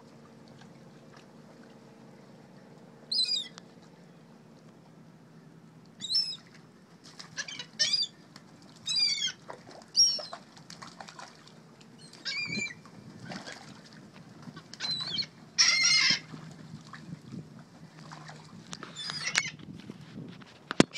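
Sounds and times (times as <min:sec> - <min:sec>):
gulls calling: 0:03.0 - 0:03.6, 0:06.0 - 0:06.6, 0:07.2 - 0:10.5, 0:11.9 - 0:13.6, 0:14.5 - 0:16.4, 0:18.8 - 0:19.6
wings flapping: 0:09.5 - 0:11.4.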